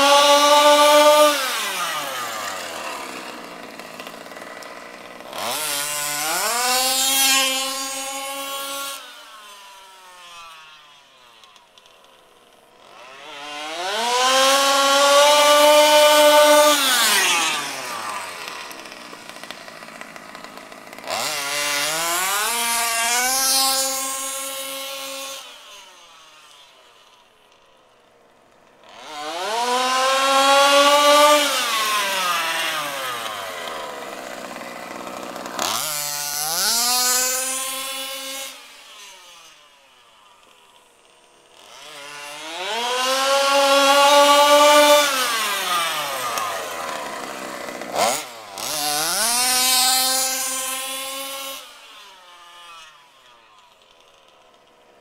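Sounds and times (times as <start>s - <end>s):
rc buggy engine revving: 0.0s - 55.0s.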